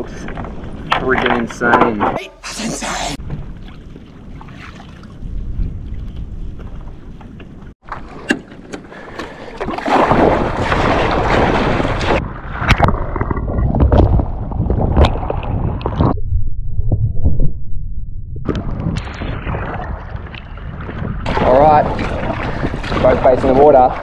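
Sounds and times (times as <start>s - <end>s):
water slapping along hull: 3.2s - 16.1s, 18.5s - 24.0s
paddle strokes splashing: 7.8s - 12.2s, 21.3s - 24.0s
wind rushing on microphone: 18.4s - 24.0s.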